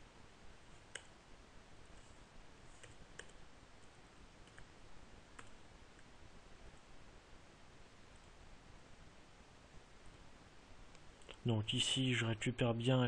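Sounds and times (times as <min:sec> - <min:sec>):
faint keyboard and mouse clicks: 0:00.6 - 0:01.2, 0:02.0 - 0:06.1, 0:10.9 - 0:11.4.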